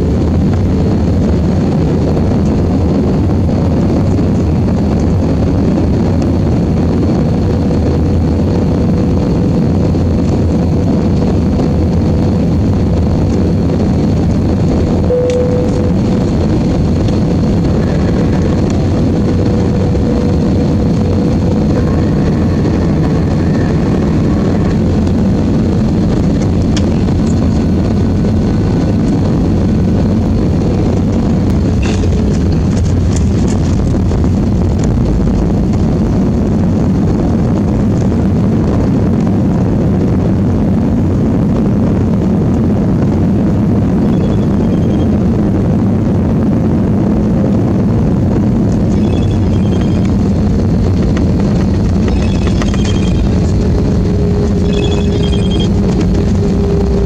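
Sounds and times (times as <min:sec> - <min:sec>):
aircraft cabin engine noise: 0:00.0 - 0:57.0
faint whine: 0:00.0 - 0:57.0.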